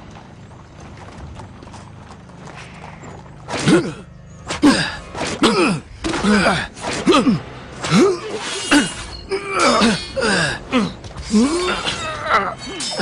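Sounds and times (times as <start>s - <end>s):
men grunting and shouting: 4.6s - 13.0s
sword blades clashing: 11.6s - 13.0s.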